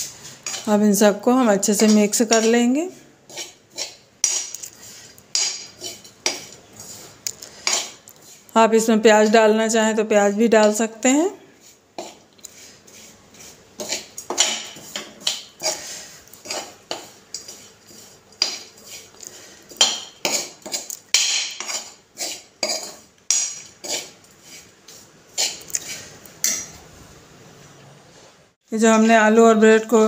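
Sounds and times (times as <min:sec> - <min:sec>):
metal spoon scraping metal pan: 0:00.0 - 0:00.8, 0:01.6 - 0:08.5, 0:11.6 - 0:24.7, 0:25.3 - 0:26.8.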